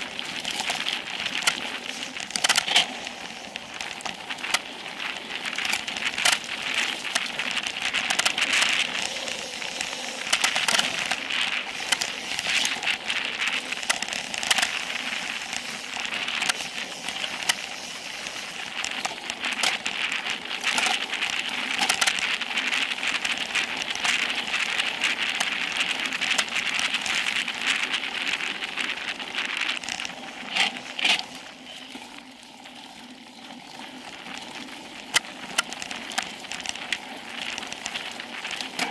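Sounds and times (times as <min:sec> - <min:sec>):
tyres hissing over dirt: 0:00.0 - 0:23.3
bike clicking and rattling: 0:00.0 - 0:38.9.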